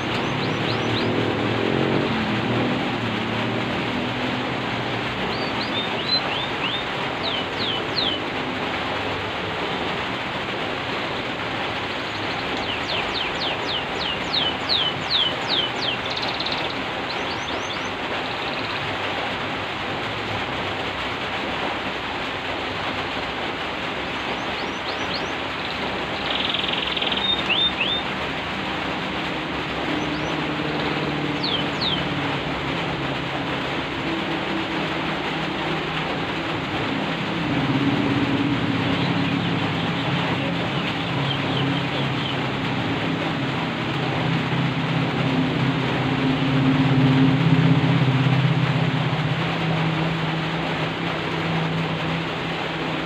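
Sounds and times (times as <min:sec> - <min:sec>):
canary singing: 0:00.0 - 0:02.0, 0:05.2 - 0:08.3, 0:12.1 - 0:18.8, 0:24.2 - 0:28.2, 0:29.7 - 0:32.4, 0:37.8 - 0:42.6
rain hissing: 0:00.0 - 0:53.0.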